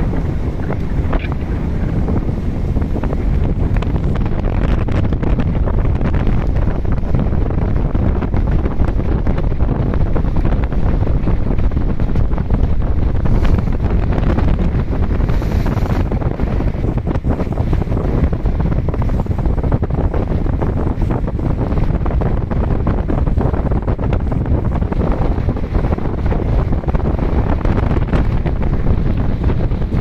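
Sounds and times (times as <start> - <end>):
choppy sea: 0.0 - 30.0
wind buffeting microphone: 0.0 - 30.0.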